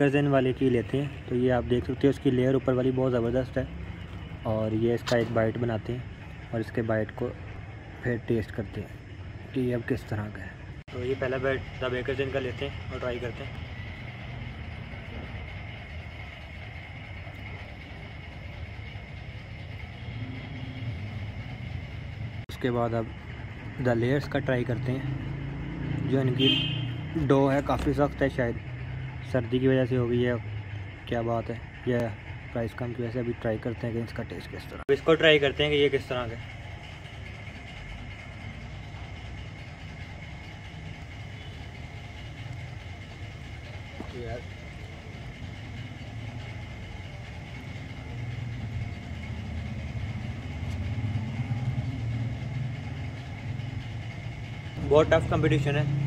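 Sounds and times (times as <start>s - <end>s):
low street rumble: 0.0s - 56.0s
faint high whine: 41.1s - 49.5s.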